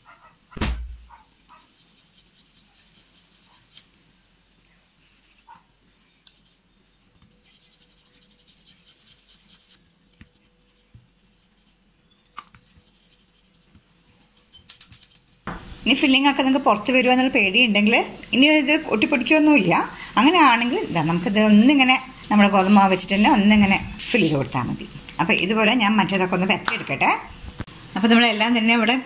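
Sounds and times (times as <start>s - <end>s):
rolling pin rolling dough: 6.3s - 15.4s
rolling pin thump: 15.5s - 15.8s.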